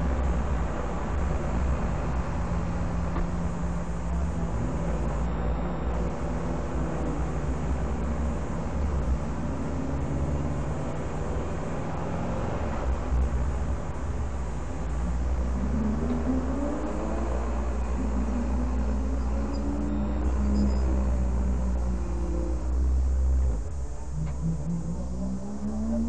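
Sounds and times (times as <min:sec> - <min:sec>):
car engine at low revs: 0:00.0 - 0:26.0
road and cabin noise: 0:00.0 - 0:26.0.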